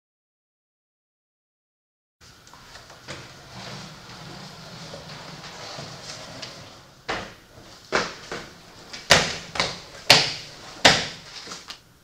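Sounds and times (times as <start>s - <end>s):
sharp knocks in a room: 7.1s - 11.3s.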